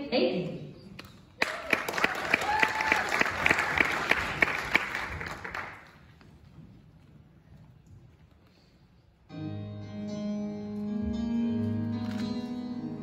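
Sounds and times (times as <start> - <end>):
audience applauding: 1.4 - 6.0.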